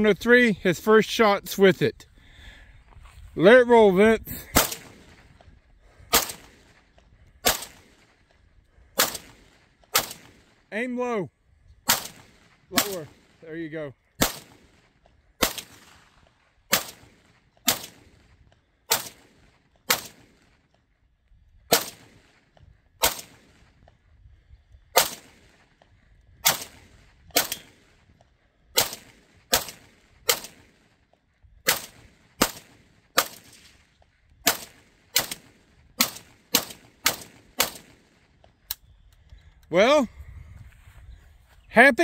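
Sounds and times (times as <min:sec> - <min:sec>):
rifle firing semi-automatic shots: 0:04.4 - 0:05.3, 0:06.0 - 0:08.3, 0:08.9 - 0:10.7, 0:11.8 - 0:13.4, 0:14.0 - 0:20.7, 0:21.6 - 0:23.9, 0:24.8 - 0:25.8, 0:26.4 - 0:38.8.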